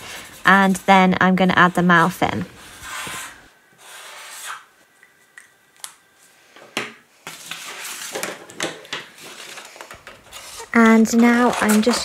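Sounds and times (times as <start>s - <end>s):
marker scratching on paper: 2.0s - 4.7s
paper rustling: 7.2s - 12.0s.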